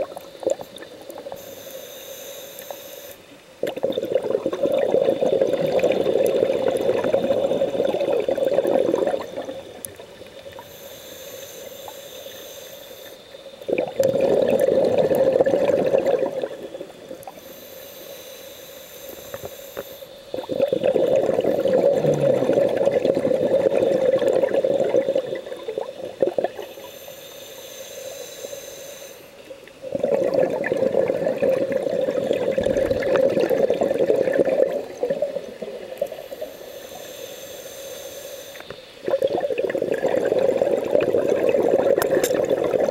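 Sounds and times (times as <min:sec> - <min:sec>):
regulator inhalation hiss: 0:00.1 - 0:03.3, 0:10.5 - 0:13.8, 0:17.3 - 0:22.2, 0:26.5 - 0:29.6, 0:36.0 - 0:39.1
exhaled bubbles: 0:03.6 - 0:10.7, 0:13.6 - 0:17.4, 0:20.3 - 0:26.7, 0:29.8 - 0:36.6, 0:39.0 - 0:42.9.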